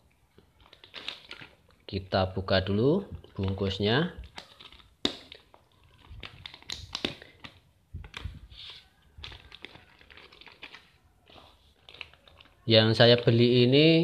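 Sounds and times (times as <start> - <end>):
plastic bag crinkling: 0.3 - 1.9, 3.2 - 13.3.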